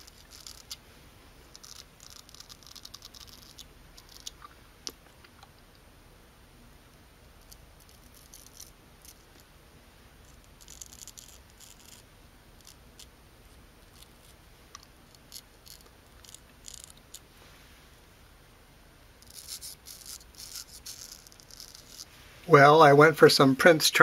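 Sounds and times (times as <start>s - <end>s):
razor scraping stubble: 0.0s - 0.8s, 1.5s - 4.6s, 10.3s - 12.0s, 13.8s - 17.2s, 19.2s - 22.1s.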